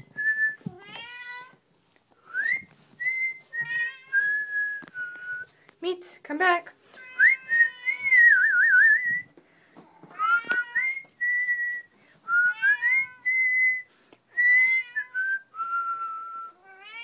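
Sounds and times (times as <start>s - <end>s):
cat meowing: 0.7s - 1.6s, 10.0s - 10.9s, 16.5s - 17.0s
person whistling: 2.2s - 5.5s, 7.2s - 9.3s, 10.5s - 16.5s.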